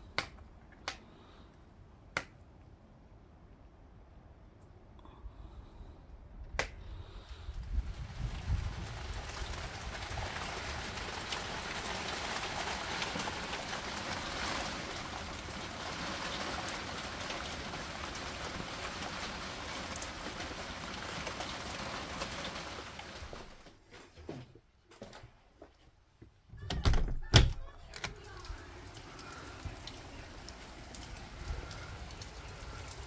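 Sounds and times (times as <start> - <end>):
steady rain falling: 7.3 - 23.8, 27.6 - 33.0
raindrops ticking: 7.6 - 23.7, 27.3 - 33.0.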